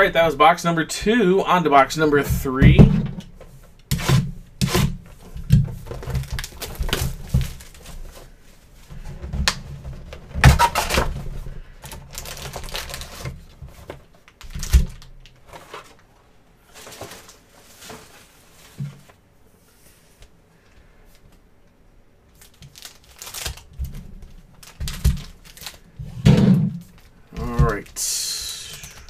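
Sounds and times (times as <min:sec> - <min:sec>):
packaging crinkling and rustling: 0:05.0 - 0:08.4, 0:09.4 - 0:19.2, 0:22.3 - 0:28.0.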